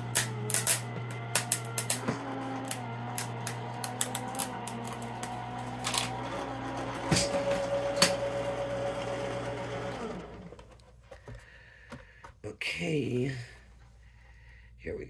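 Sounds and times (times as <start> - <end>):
die-cutting machine motor hum: 0.0 - 10.7.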